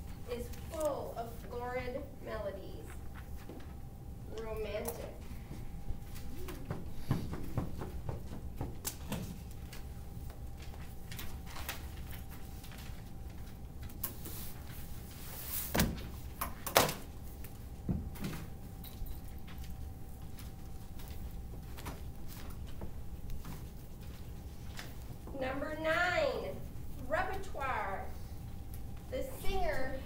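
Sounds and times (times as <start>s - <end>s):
steady low hum: 0.0s - 30.0s
knocks and clicks from desks: 6.6s - 9.4s.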